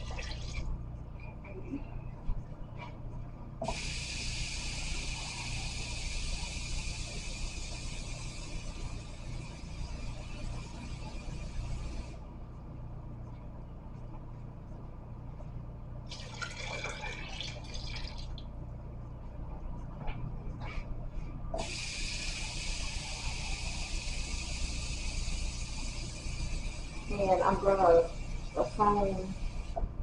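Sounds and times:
kitchen tap running: 0.0s - 0.6s, 16.1s - 18.5s
water pouring into crock: 16.1s - 18.4s.

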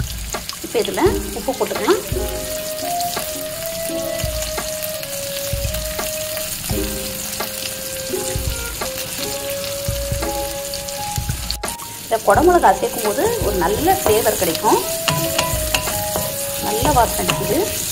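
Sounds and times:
vegetables sizzling in hot oil: 0.0s - 17.9s.

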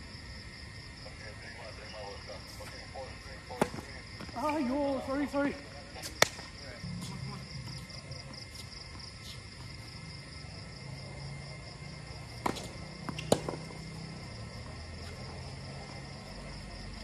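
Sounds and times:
racket striking tennis ball: 12.4s - 13.8s.

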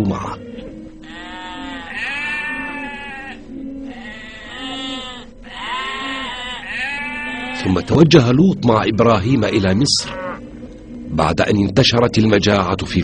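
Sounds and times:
sheep bleating: 1.0s - 8.1s, 10.0s - 10.4s.

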